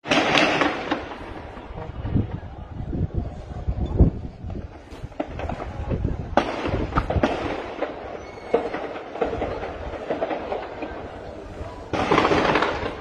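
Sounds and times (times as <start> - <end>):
gunshots cracking: 0.0 - 1.7, 11.9 - 13.0.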